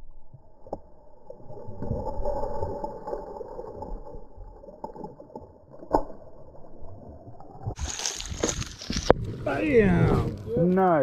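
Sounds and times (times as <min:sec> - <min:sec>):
water lapping against boat hull: 0:07.7 - 0:11.0.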